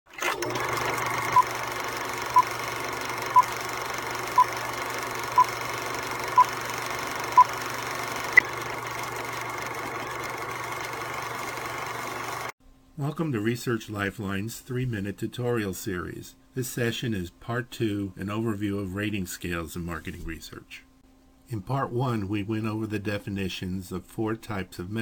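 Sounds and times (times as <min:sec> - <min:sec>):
film projector whirring: 0:00.1 - 0:12.6.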